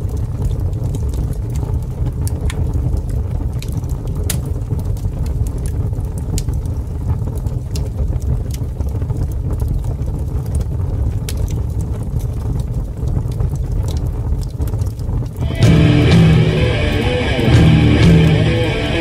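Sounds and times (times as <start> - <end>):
faint crackles and clicks: 0.0 - 19.0
deep rumbling drone: 15.4 - 19.0.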